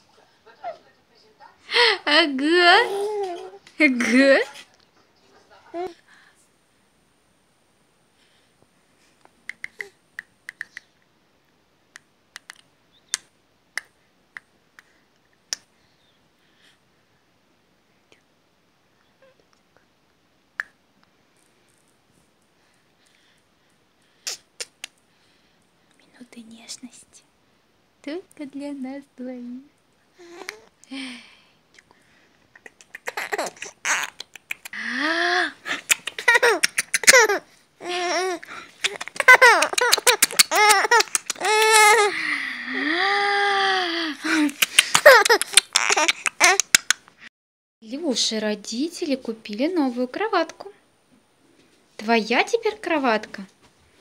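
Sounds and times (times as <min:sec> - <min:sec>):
kissing lip smacks: 0:09.4 - 0:11.0, 0:11.9 - 0:14.9, 0:15.5 - 0:15.7, 0:20.6 - 0:20.8, 0:24.2 - 0:25.0, 0:32.5 - 0:34.8, 0:35.7 - 0:37.2, 0:38.8 - 0:41.9, 0:44.3 - 0:47.2
infant giggling: 0:32.8 - 0:34.7, 0:35.6 - 0:42.1, 0:44.2 - 0:46.8
infant squealing: 0:32.9 - 0:34.2, 0:35.7 - 0:42.2, 0:44.5 - 0:46.8
breathy sounds: 0:34.6 - 0:46.5.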